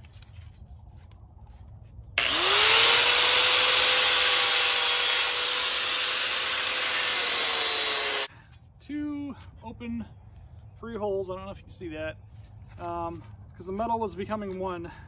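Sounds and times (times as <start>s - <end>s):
angle grinder grinding metal: 2.2s - 8.3s.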